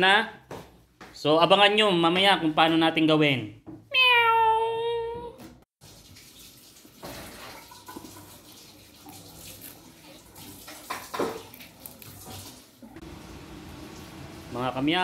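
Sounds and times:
kitchen tap running: 0:05.8 - 0:15.0.

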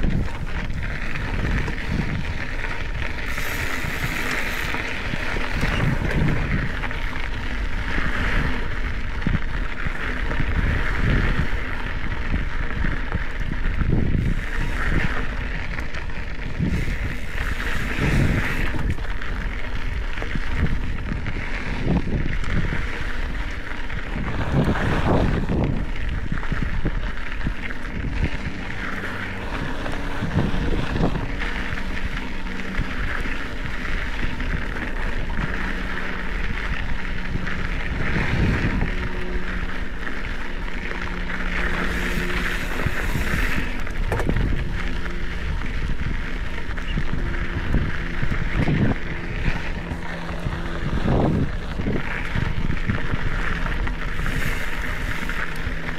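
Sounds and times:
bike tyres grinding on dirt: 0:00.0 - 0:55.9
wind buffeting microphone: 0:00.0 - 0:55.9
bike knocking over bumps: 0:41.7 - 0:45.6.

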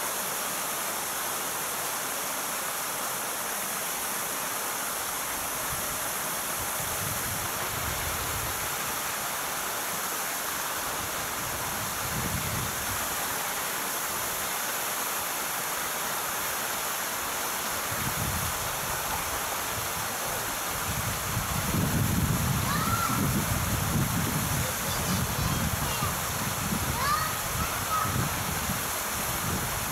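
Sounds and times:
outdoor rushing hiss: 0:00.0 - 0:29.9.

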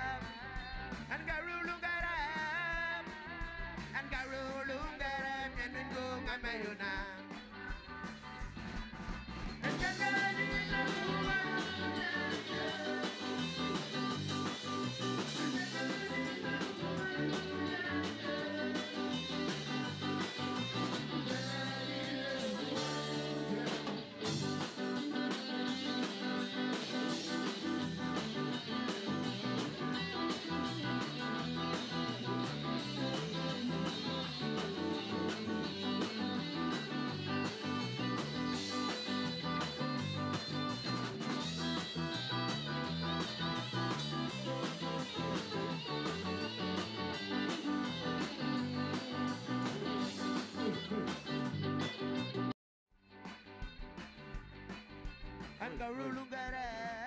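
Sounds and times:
person singing: 0:00.0 - 0:07.4, 0:09.6 - 0:13.9, 0:15.2 - 0:39.5
live rock band playing: 0:00.0 - 0:57.0.

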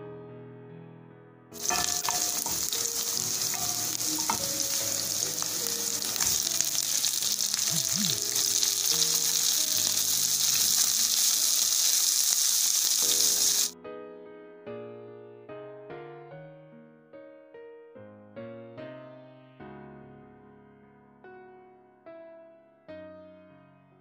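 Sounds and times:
vegetables sizzling in oil: 0:01.6 - 0:13.7.

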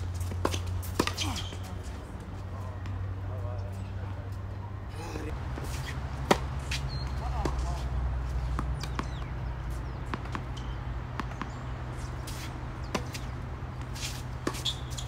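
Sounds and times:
tennis ball hit by racket: 0:00.2 - 0:01.7, 0:05.6 - 0:15.0.

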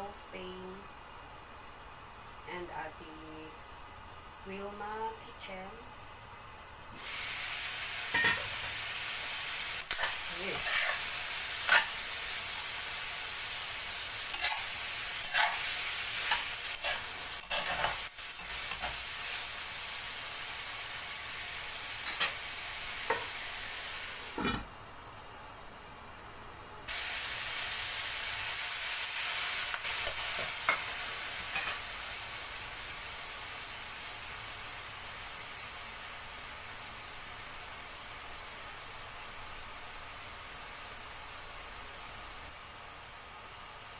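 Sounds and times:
food sizzling in a wok: 0:00.0 - 0:43.9
metal spatula scraping a pan: 0:09.8 - 0:12.0, 0:14.3 - 0:19.0, 0:22.0 - 0:22.4, 0:31.5 - 0:31.8.

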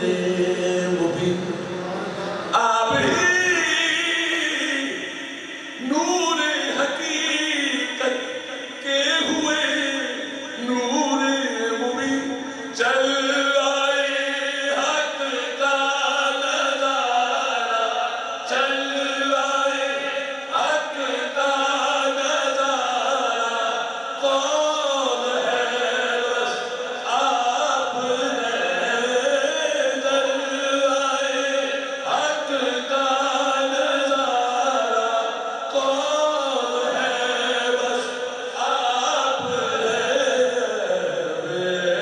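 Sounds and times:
man singing into a microphone: 0:00.0 - 0:01.8, 0:02.5 - 0:42.0.

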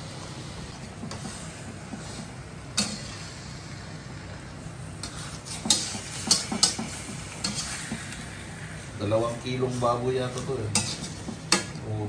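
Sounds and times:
fork scraping metal wok: 0:05.0 - 0:08.2, 0:10.7 - 0:11.7.

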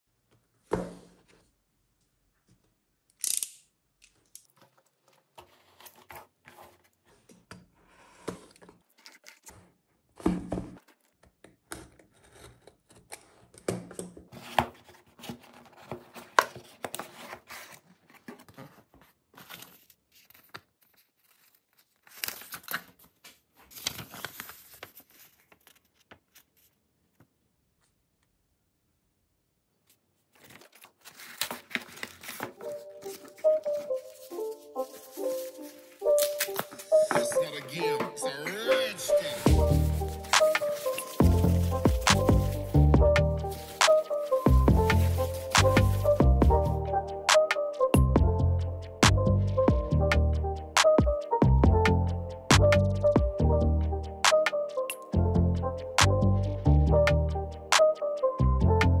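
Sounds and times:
cardboard and paper rustling: 0:04.5 - 0:27.3, 0:30.2 - 0:46.4
packing tape torn off: 0:30.4 - 0:37.0.

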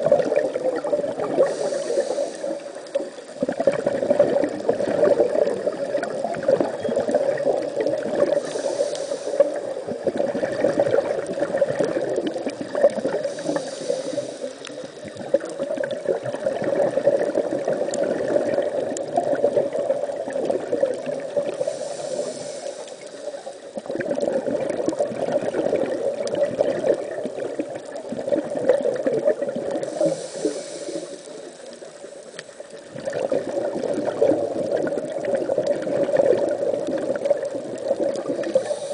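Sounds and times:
bubbling and gurgling exhalations: 0:00.0 - 0:32.0, 0:32.7 - 0:38.9
regulator hiss on inhale: 0:01.3 - 0:03.5, 0:08.2 - 0:10.2, 0:12.7 - 0:15.7, 0:21.3 - 0:24.0, 0:29.7 - 0:32.9, 0:36.9 - 0:38.9.

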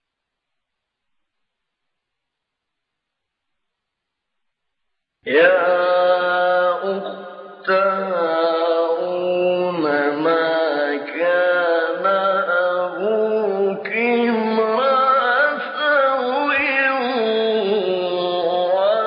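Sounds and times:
man chanting melodically: 0:05.3 - 0:19.0.

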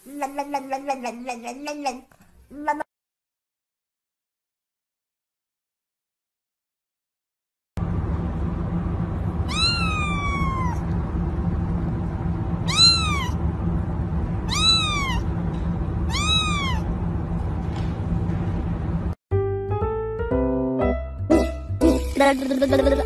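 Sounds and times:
kitten meowing: 0:09.5 - 0:10.8, 0:12.7 - 0:13.4, 0:14.5 - 0:15.2, 0:16.1 - 0:16.9.

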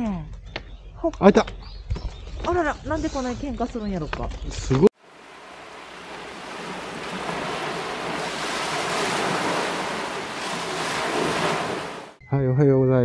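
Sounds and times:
wind and waves at seashore: 0:05.0 - 0:12.2.

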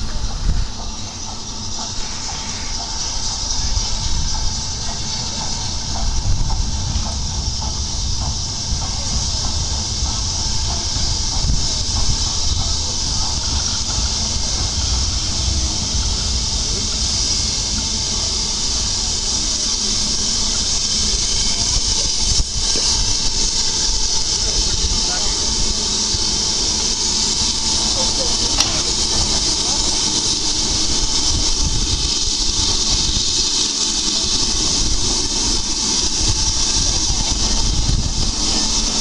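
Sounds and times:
hiss of steam: 0:00.0 - 0:39.0
steam locomotive low rumble: 0:00.0 - 0:39.0.

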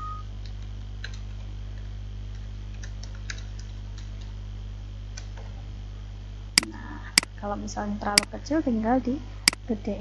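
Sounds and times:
low steady hum: 0:00.0 - 0:10.0
keyboard and mouse clicks: 0:02.3 - 0:04.2.

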